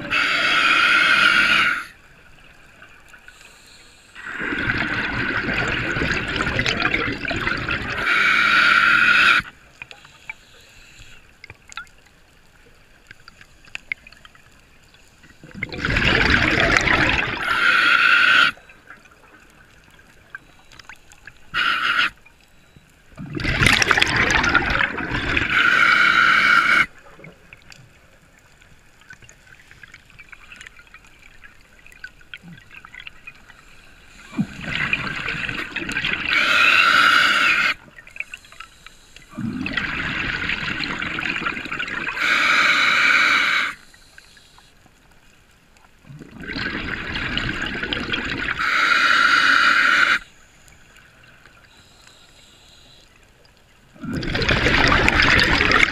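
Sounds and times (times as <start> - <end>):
diver breathing through regulator: 0.0 - 2.0, 8.0 - 11.2, 21.5 - 22.2, 23.7 - 26.9, 36.3 - 40.0, 42.1 - 44.7, 48.6 - 50.3.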